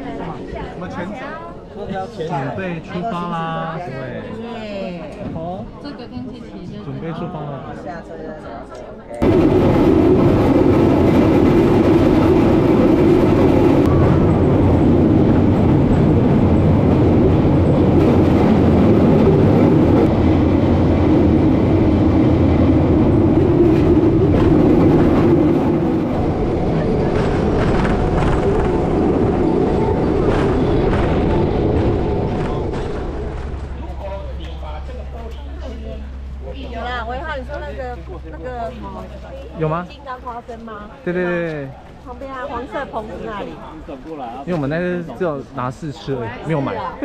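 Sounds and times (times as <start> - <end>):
steel wheels rumbling on track: 9.2 - 37.5.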